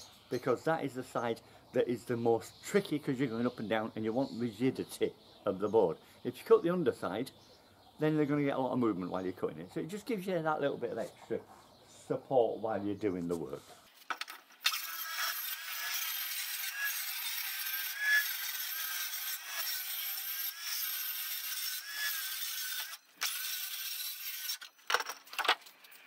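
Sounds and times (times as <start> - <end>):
circular saw cutting steel: 14.6 - 24.7.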